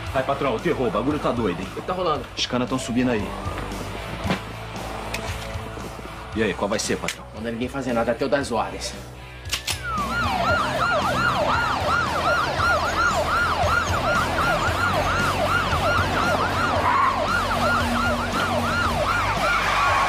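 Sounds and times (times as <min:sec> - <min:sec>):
police sirens yelping: 0:09.8 - 0:20.0.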